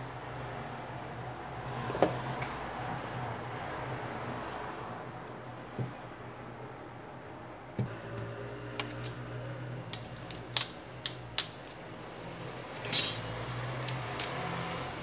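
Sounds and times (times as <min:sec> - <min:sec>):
brief rasp: 0:12.8 - 0:13.3.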